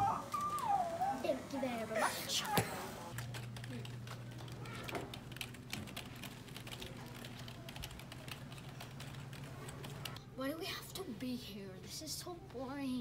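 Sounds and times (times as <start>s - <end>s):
fast typing on keyboard: 3.2s - 10.2s.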